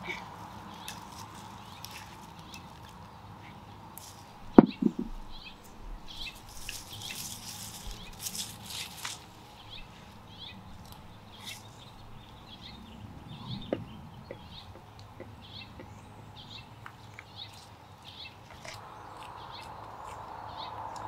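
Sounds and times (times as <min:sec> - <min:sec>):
hands digging through soil: 0:00.0 - 0:03.1, 0:06.2 - 0:10.2
sharp knock: 0:04.6 - 0:05.1.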